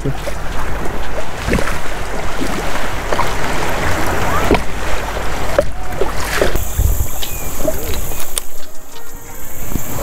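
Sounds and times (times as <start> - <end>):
small splashes and knocks: 0.0 - 6.6
floodwater rushing and splashing: 0.0 - 10.0.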